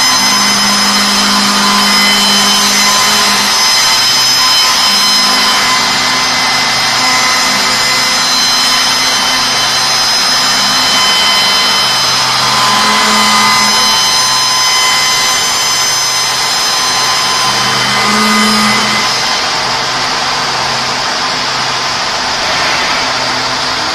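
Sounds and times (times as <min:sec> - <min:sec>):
cutters machining wood: 0:00.0 - 0:23.9
high-speed spindles whining: 0:00.0 - 0:23.9
low hum: 0:21.7 - 0:23.9.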